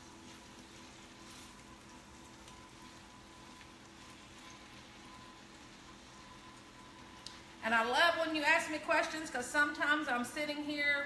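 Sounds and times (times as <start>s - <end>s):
steak sizzling in a pan: 0.0s - 7.5s.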